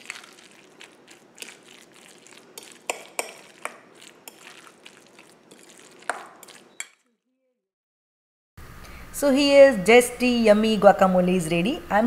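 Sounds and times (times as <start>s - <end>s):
metal spoon scraping a bowl: 0.0s - 7.0s.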